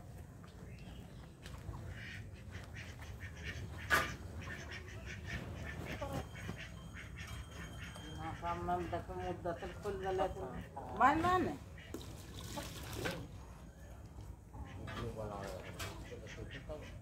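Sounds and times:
low background noise: 0.0s - 17.0s
faint poultry calls: 1.8s - 12.6s, 13.3s - 17.0s
poultry squawk: 1.9s - 10.0s.

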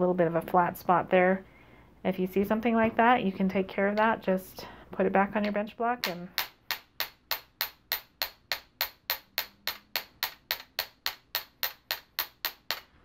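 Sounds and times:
hammer tapping wire on metal: 5.4s - 12.9s.

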